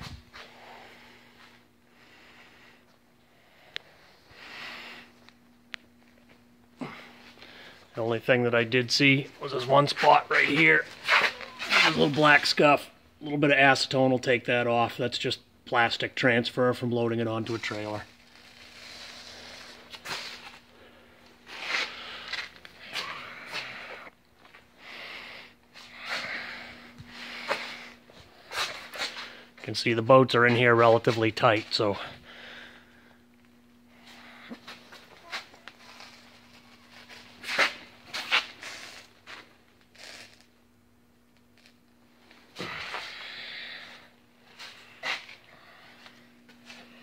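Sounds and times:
faint steady hum: 0.0 - 47.0
hissy breaths: 0.3 - 5.4, 19.3 - 29.6, 42.6 - 47.0.

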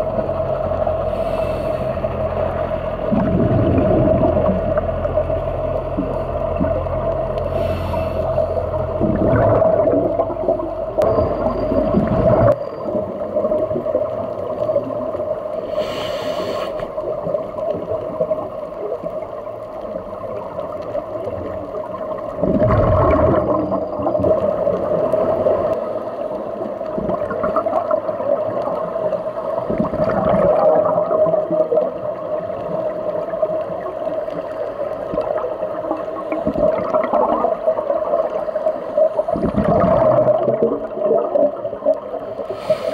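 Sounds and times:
muffled regulator bubbles: 0.0 - 42.9
steady underwater hum: 0.0 - 42.9.

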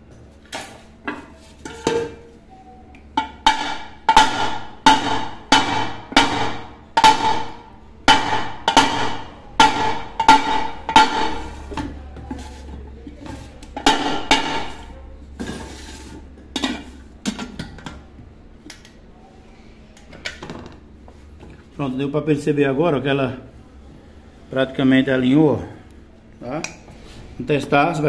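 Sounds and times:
hammer striking metal rim: 3.2 - 11.8.

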